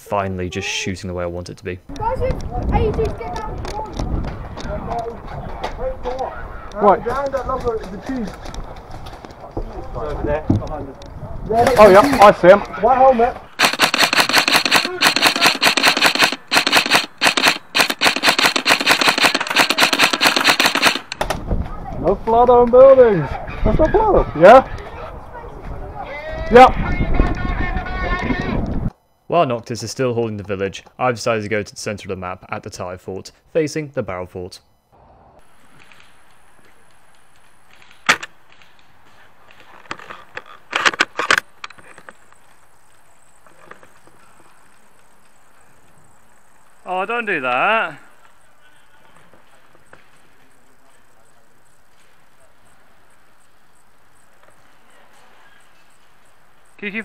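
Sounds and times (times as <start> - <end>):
airsoft guns firing full auto: 13.6 - 21.2.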